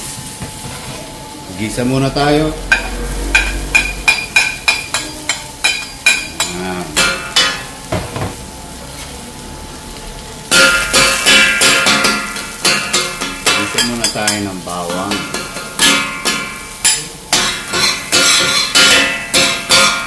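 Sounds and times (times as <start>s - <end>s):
garlic sizzling in hot oil: 0.0s - 20.0s
metal spatulas tapping and scraping: 10.5s - 20.0s.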